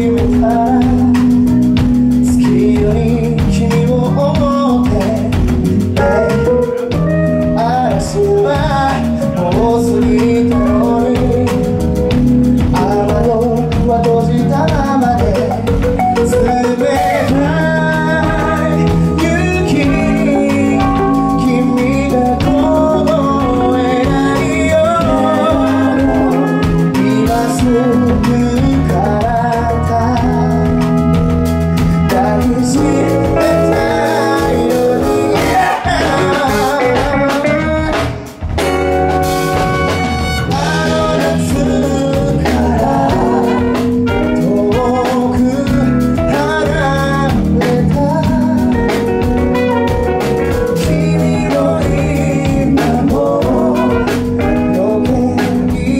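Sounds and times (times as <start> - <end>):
drum kit: 0.0 - 55.9
electric guitar: 0.0 - 55.9
lead singer singing: 0.0 - 55.9
backing singers: 17.0 - 29.5, 31.8 - 38.2, 39.5 - 44.8.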